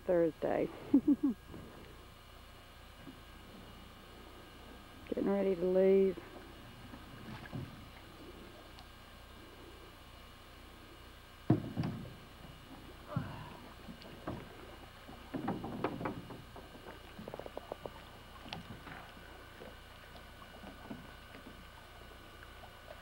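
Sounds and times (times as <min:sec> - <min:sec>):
knocks on metal boat hull: 0:11.5 - 0:12.2.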